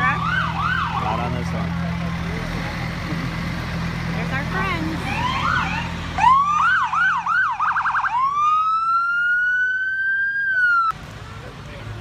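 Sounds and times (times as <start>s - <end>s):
fire engine siren: 0.0s - 1.8s, 5.0s - 10.9s
heavy truck engine rumble: 0.0s - 12.0s.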